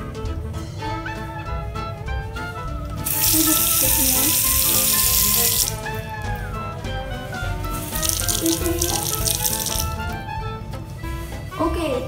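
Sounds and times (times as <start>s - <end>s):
background music: 0.0s - 12.0s
tap water running into sink: 3.0s - 6.4s, 7.7s - 10.1s.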